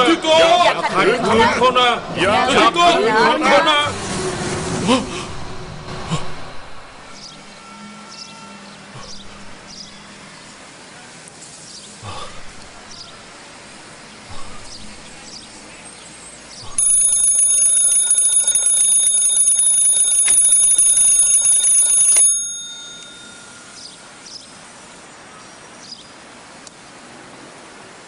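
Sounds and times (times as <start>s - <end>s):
mechanical bell ringing: 16.8s - 24.0s.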